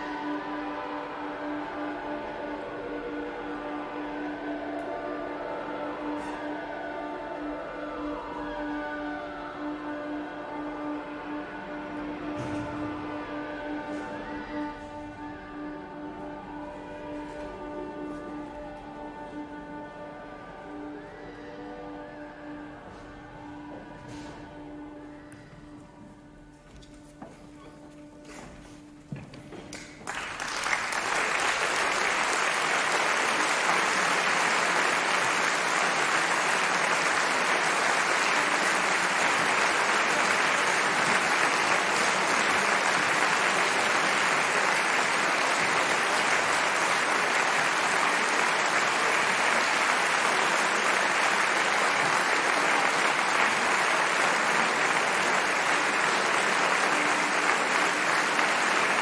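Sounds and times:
audience applauding: 29.7s - 59.0s.

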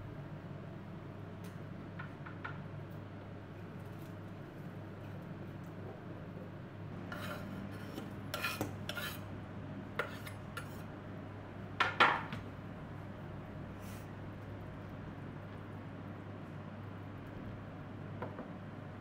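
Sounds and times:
scraping on cutting board: 7.0s - 9.3s, 10.0s - 10.9s.

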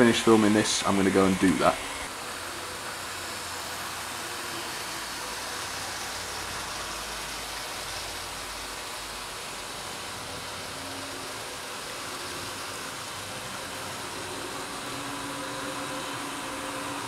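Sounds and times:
model trains running on track: 0.0s - 17.0s.

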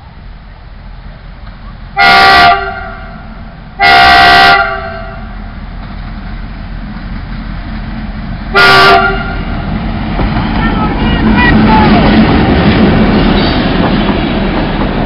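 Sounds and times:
train low rumble: 0.0s - 15.0s
locomotive horn blasts: 2.0s - 3.2s, 3.8s - 5.4s, 8.5s - 9.5s.

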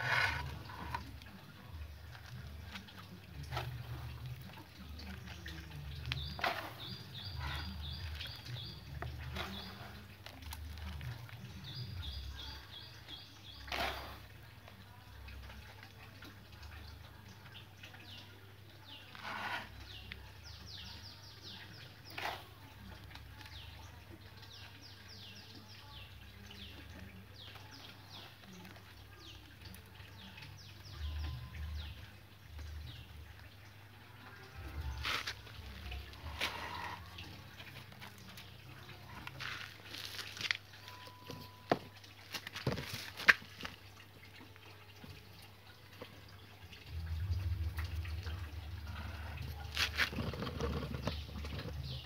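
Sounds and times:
hands handling soil: 0.0s - 15.4s, 34.8s - 44.0s, 49.0s - 52.0s
small birds chirping: 0.0s - 52.0s.

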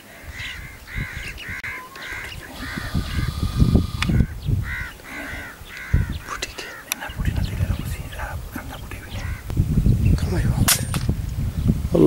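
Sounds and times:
crows cawing: 0.2s - 7.1s, 9.1s - 9.5s
low rumbling noise: 2.1s - 6.2s.

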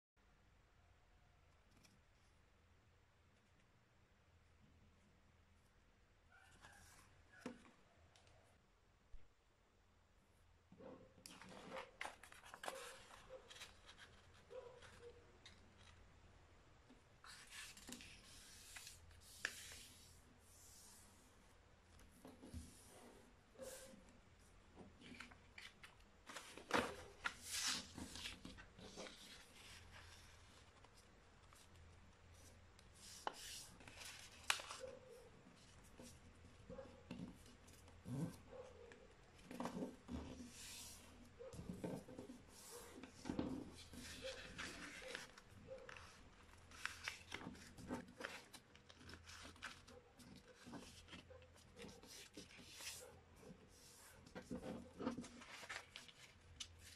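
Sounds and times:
paper being folded and creased: 11.2s - 16.1s, 17.2s - 21.0s, 25.0s - 56.9s.

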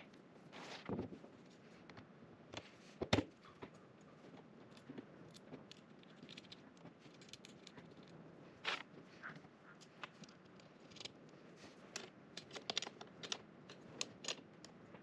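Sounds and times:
metal parts clicking and knocking: 4.7s - 8.1s, 10.0s - 11.3s, 11.9s - 14.8s.

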